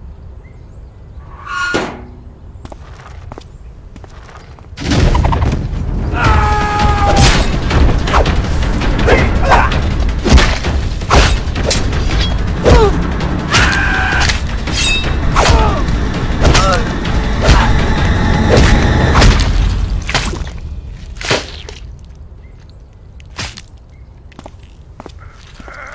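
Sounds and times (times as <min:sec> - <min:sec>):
sharp hits and booms: 0:04.8 - 0:20.6
loud action music: 0:05.2 - 0:20.1.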